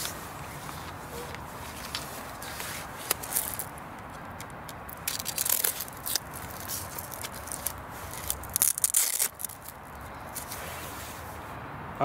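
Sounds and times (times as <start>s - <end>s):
velcro strap ripping: 1.6s - 10.9s.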